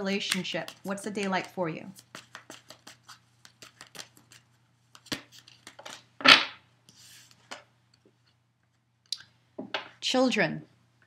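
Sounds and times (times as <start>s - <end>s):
cards being shuffled: 0.1s - 7.6s.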